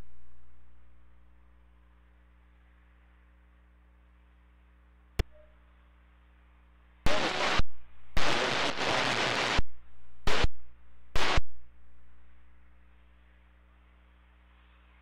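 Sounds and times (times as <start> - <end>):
radio crackles: 7.1 - 10.6, 11.2 - 11.5
radio static hiss: 7.1 - 11.6.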